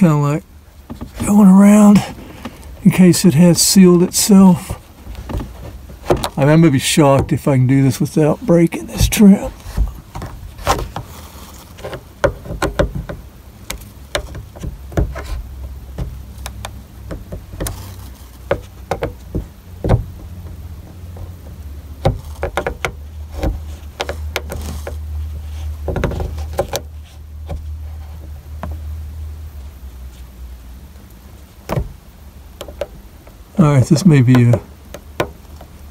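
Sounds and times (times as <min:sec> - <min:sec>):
low steady hum: 0:00.0 - 0:35.9
spatula clicking and scraping plastic: 0:09.0 - 0:19.5.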